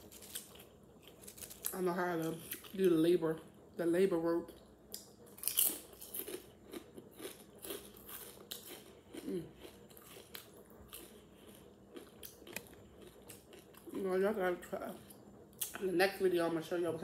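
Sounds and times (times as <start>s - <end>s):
potato chip crunching: 0.0s - 2.8s, 5.3s - 14.0s.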